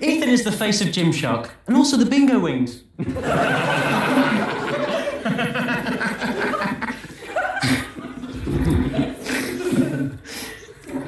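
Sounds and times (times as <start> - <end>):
audience laughing: 3.0 - 10.3.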